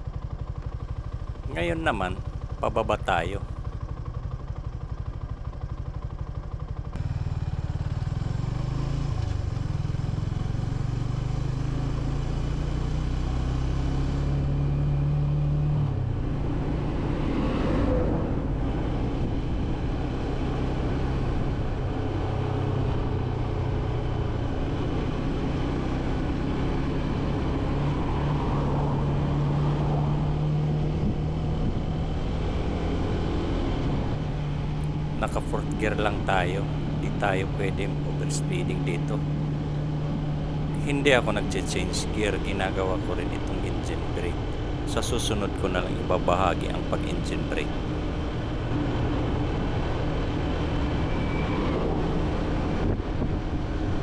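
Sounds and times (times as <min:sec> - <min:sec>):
wind noise: 0:30.9 - 0:33.2, 0:50.9 - 0:54.0.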